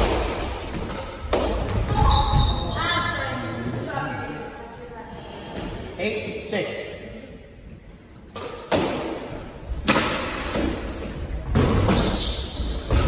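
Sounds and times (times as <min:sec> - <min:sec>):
squash ball cracks: 0:00.0 - 0:01.9, 0:08.3 - 0:10.8
sneakers squeaking on floor: 0:00.0 - 0:03.2, 0:10.5 - 0:13.0.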